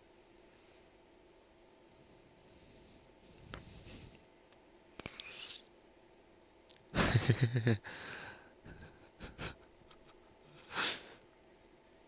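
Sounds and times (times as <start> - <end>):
man chuckling: 6.9 - 8.0, 8.6 - 10.8.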